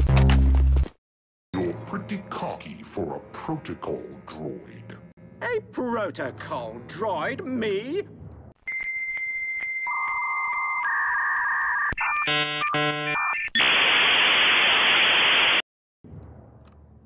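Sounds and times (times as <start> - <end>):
loud static hiss: 13.6 - 15.6.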